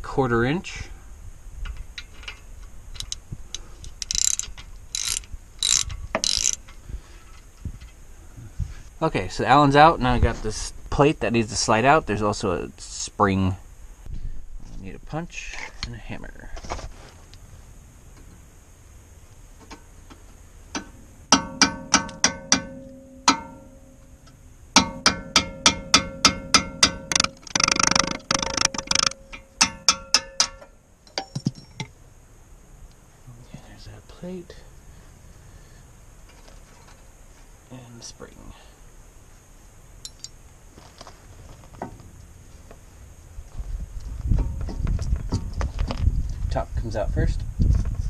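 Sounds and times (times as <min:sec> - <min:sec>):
socket ratchet clicking: 0:03.0 - 0:03.2, 0:03.9 - 0:06.7, 0:24.8 - 0:31.2
hammer striking steel punch: 0:21.3 - 0:24.0, 0:24.8 - 0:31.6.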